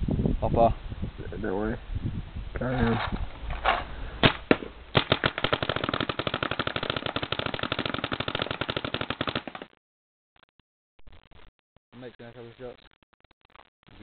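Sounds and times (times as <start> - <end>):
paintball marker firing: 4.2 - 9.8.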